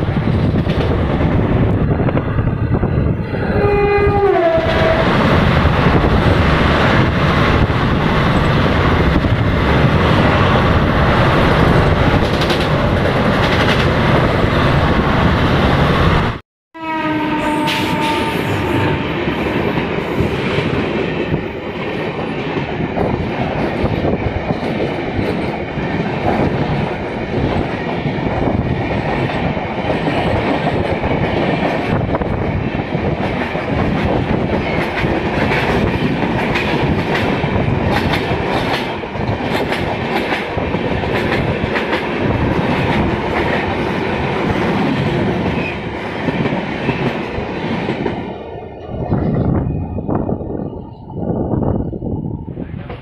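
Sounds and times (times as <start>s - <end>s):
train coaches rushing past: 0.0s - 53.0s
train horn: 3.4s - 5.1s, 16.8s - 19.2s.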